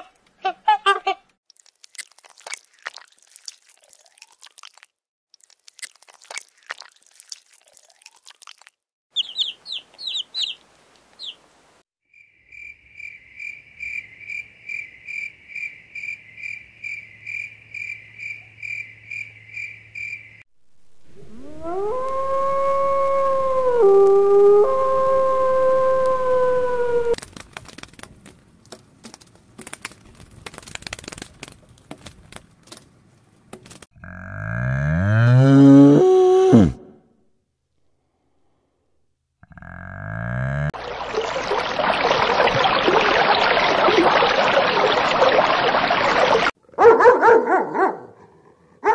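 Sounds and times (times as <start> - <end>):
wolf howling: 21.2 - 27.2
scattered clicks and crackles: 27.2 - 32.9.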